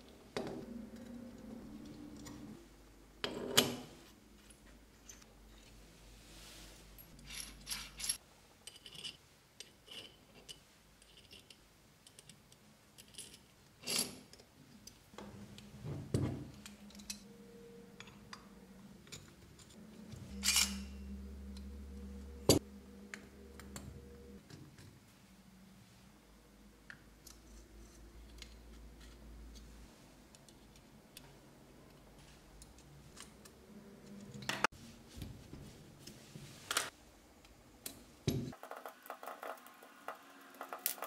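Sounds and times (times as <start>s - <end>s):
metal parts clicking and tapping: 7.2s - 17.3s, 37.8s - 41.0s.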